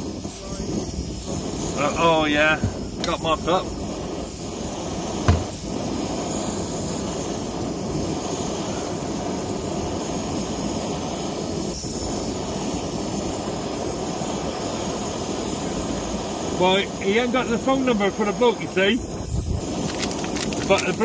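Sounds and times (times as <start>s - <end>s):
gas burner hissing: 0.0s - 21.0s
short knock: 5.2s - 5.6s.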